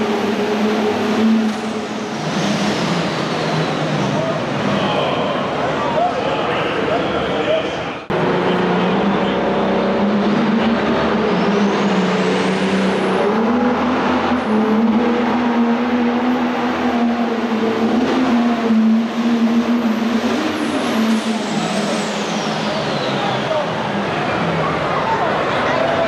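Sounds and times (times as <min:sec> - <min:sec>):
tractor engine at full throttle: 0:00.0 - 0:05.8.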